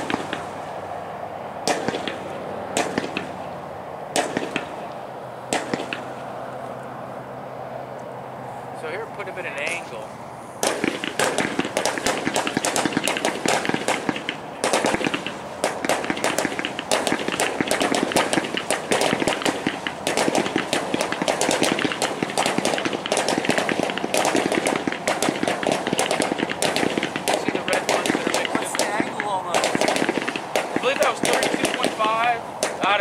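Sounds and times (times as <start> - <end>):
fireworks launch reports: 8.8 - 33.0.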